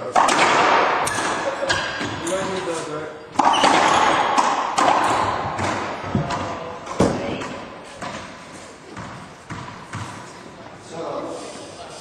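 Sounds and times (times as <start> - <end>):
racquet hitting ball: 0.0 - 10.4
ball bouncing off court walls: 0.1 - 2.6, 3.3 - 10.3.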